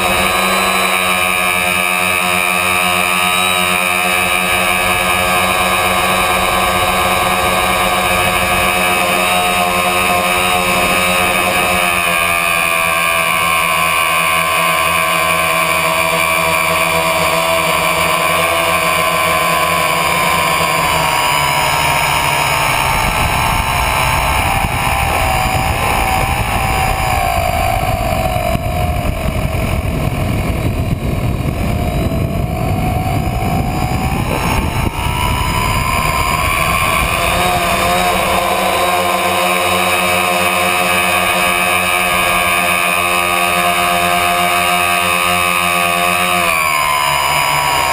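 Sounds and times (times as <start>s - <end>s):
drone motors whining: 0.0s - 47.9s
rushing air rumble: 20.8s - 39.3s.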